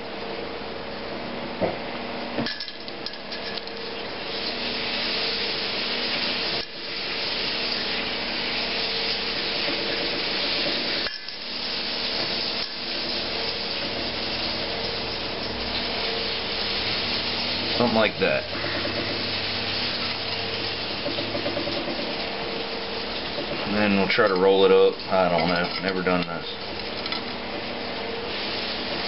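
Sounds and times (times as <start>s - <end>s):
food frying in hot oil: 2.2s - 29.0s.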